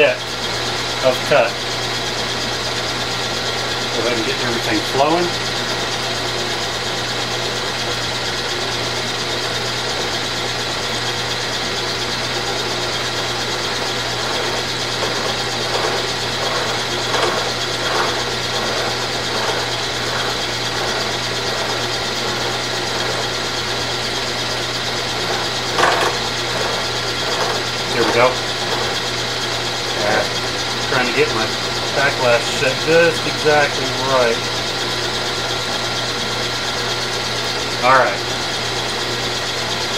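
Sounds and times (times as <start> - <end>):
milling machine running: 0.0 - 39.9
cutter scraping metal: 9.7 - 36.4.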